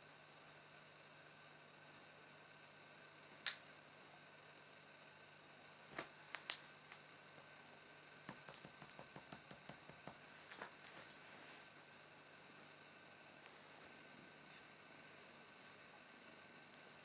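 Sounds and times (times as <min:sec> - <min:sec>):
kitten's claws clicking on bedspread: 0:06.4 - 0:11.1.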